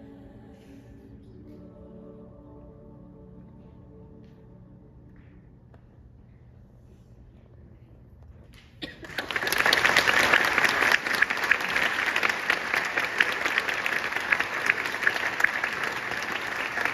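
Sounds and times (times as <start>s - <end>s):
audience applauding: 8.8s - 16.9s.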